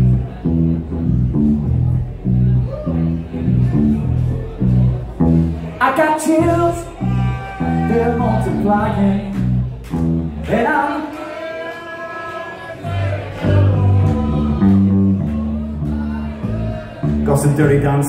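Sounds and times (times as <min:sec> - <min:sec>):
person singing: 0:12.0 - 0:16.9.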